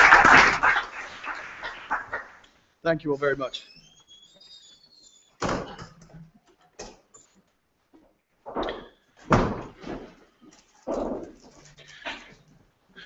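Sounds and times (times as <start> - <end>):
short squeak: 3.6 - 5.4.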